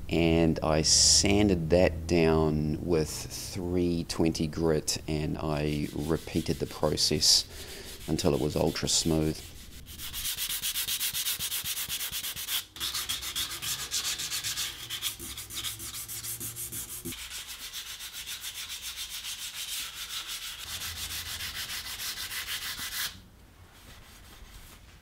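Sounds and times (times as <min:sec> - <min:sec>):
sandpaper rasping on wood: 0:05.5 - 0:23.2.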